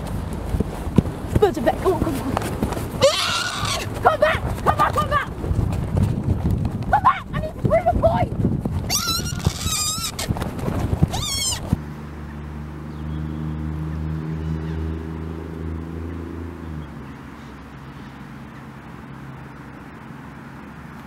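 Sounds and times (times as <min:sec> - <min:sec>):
person's high wavering cry: 0:11.1 - 0:11.6.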